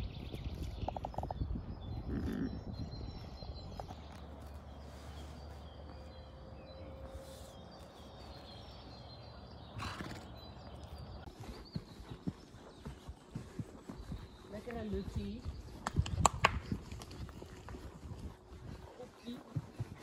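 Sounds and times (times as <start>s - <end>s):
low wind rumble: 0.0s - 20.0s
faint bird chirps: 0.3s - 15.7s.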